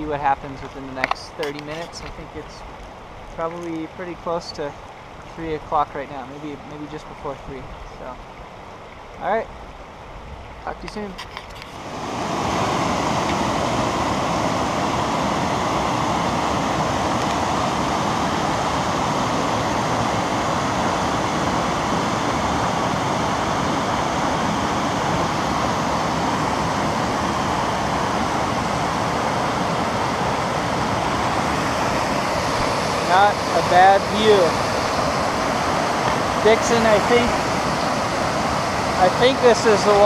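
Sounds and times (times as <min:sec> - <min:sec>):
water rushing over rocks: 0:10.9 - 0:40.0.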